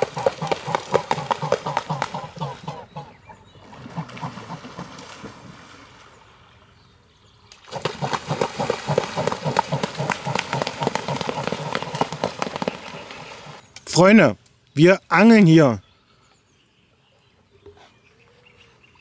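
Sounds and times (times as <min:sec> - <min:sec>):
swan calls: 0:00.0 - 0:05.0
wings and feet splashing water: 0:00.0 - 0:06.6, 0:07.4 - 0:13.6.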